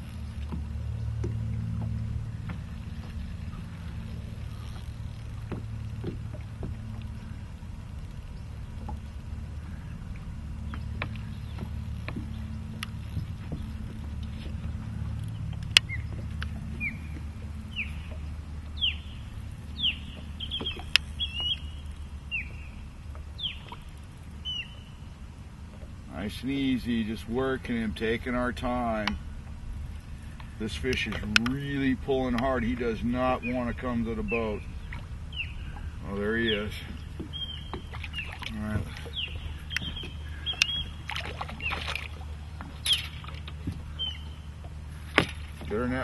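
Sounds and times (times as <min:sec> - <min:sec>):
water and wind rumble: 0:00.0 - 0:46.0
short falling squeaks: 0:42.7 - 0:43.3.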